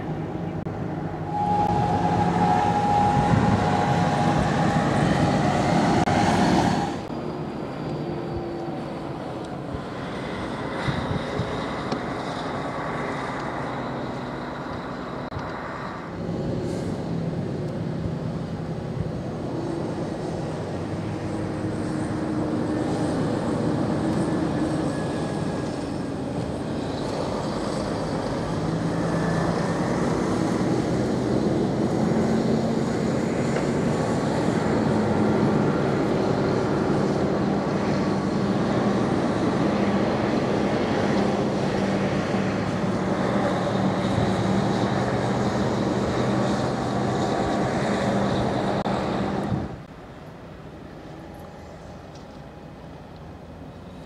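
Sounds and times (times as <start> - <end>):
vehicle engines droning: 0.0 - 54.0.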